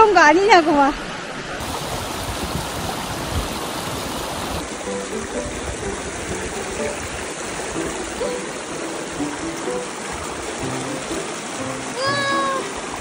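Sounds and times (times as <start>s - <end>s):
stream splashing over rocks: 1.0s - 13.0s
light background music: 4.6s - 13.0s.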